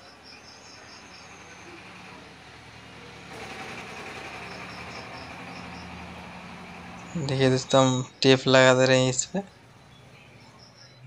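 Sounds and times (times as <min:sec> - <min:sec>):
bird chirping: 0:00.0 - 0:02.2, 0:04.4 - 0:06.2, 0:06.8 - 0:11.0.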